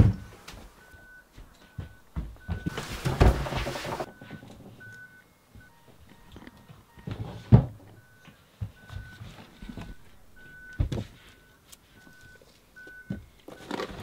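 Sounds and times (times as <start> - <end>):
things thumping and rustling: 0.0 - 11.4
faint high beeps: 4.1 - 13.8.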